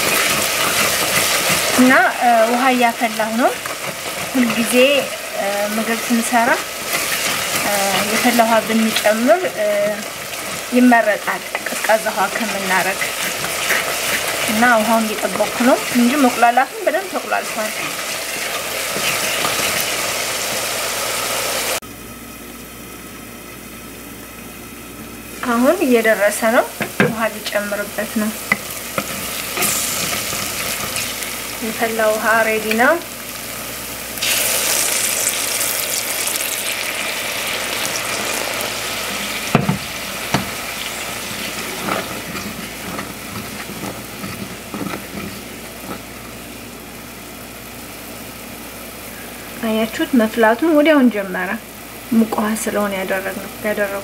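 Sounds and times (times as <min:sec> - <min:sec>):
wooden spoon stirring: 0:00.0 - 0:20.6, 0:40.3 - 0:46.2
onions sizzling in oil: 0:00.0 - 0:21.8, 0:22.6 - 0:54.0.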